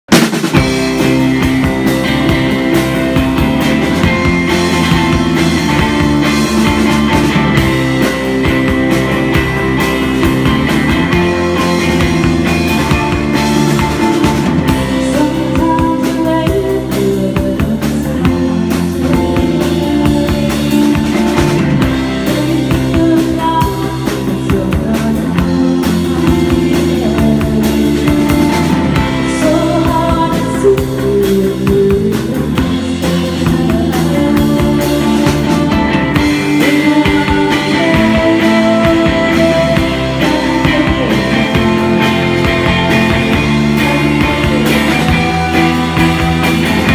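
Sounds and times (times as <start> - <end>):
drum kit: 0.0 - 46.9
strummed electric guitar: 0.1 - 46.9
woman singing: 12.7 - 46.9.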